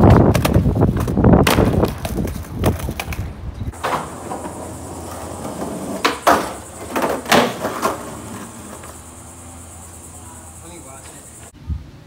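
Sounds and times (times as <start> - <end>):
skateboard clacking on concrete: 0.0 - 9.0
skateboard wheels rolling: 0.0 - 11.5.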